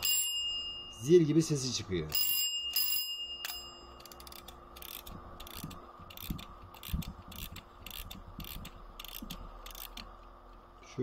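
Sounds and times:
faint steady hum: 0:00.0 - 0:11.0
clock mechanism clicking: 0:02.1 - 0:10.6.

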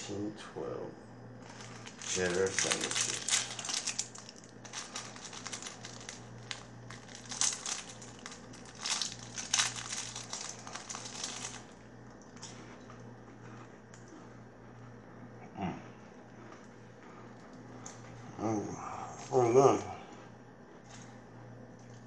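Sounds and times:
plastic wrapper crinkling: 0:01.4 - 0:11.8
wrapper being torn open: 0:01.5 - 0:11.8.

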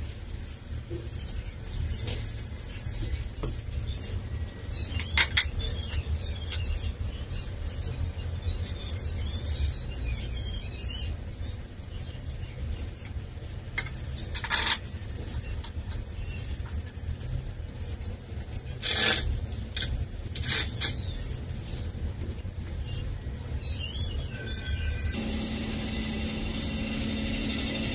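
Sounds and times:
steady low hum: 0:24.9 - 0:27.9.

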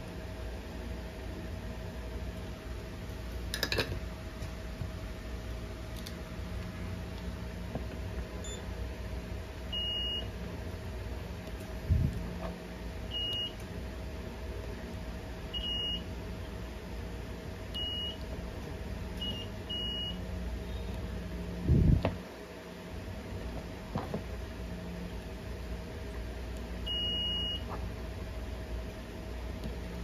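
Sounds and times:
faint steady hum: 0:00.0 - 0:30.0
multimeter beeps: 0:08.4 - 0:08.6, 0:09.7 - 0:10.3, 0:13.1 - 0:13.6, 0:15.5 - 0:16.1, 0:17.8 - 0:18.2, 0:19.2 - 0:21.0, 0:26.8 - 0:27.7.

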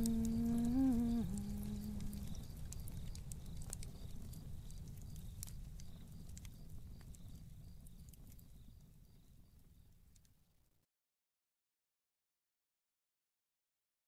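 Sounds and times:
person humming a note: 0:00.0 - 0:02.4
low rumble: 0:00.0 - 0:02.7
faint clicks: 0:00.0 - 0:08.9, 0:09.6 - 0:10.4.

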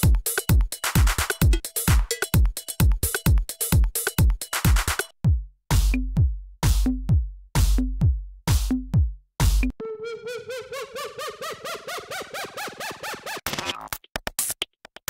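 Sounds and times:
drum machine beat with hi-hats: 0:00.0 - 0:09.8.

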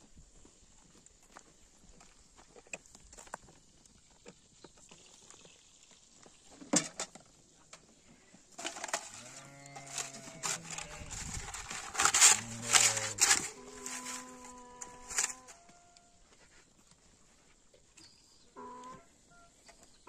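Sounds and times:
livestock bleating: 0:09.1 - 0:11.2, 0:12.4 - 0:16.2, 0:18.6 - 0:19.1.

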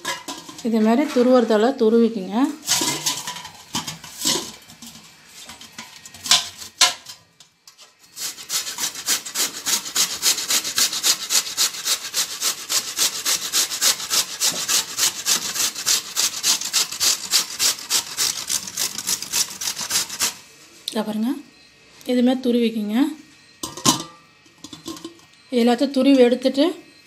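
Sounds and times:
gourd grated on metal grater: 0:08.1 - 0:20.4.

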